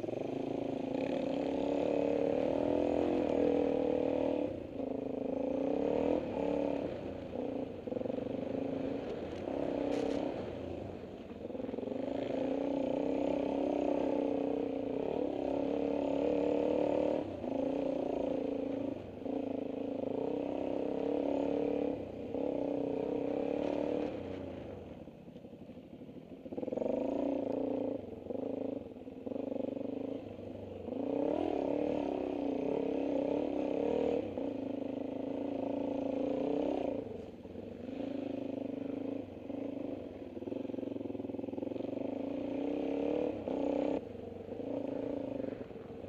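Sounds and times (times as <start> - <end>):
dirt bike engine revving: 0.0 - 11.0, 30.1 - 45.8.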